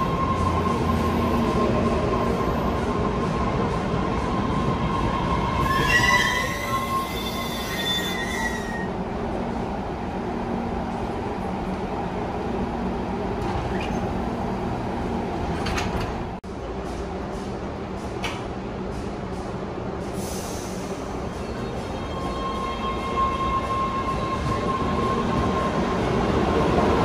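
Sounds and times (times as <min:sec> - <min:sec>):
subway train rumbling: 0:00.0 - 0:27.0
wheels squealing on rail: 0:04.2 - 0:09.0, 0:20.2 - 0:26.2.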